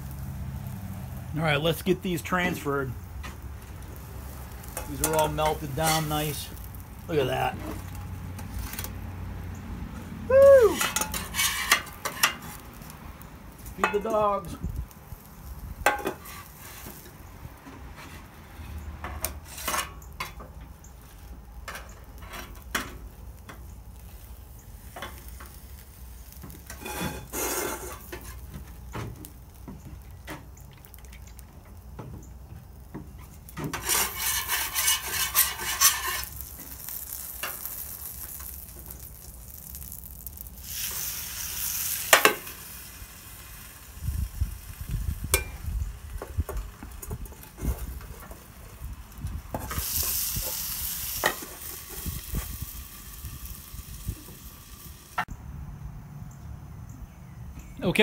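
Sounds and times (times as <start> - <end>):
food sizzling on griddle: 0.0 - 55.4
metal spatula clinks and scrapes: 10.8 - 12.5, 33.7 - 36.3.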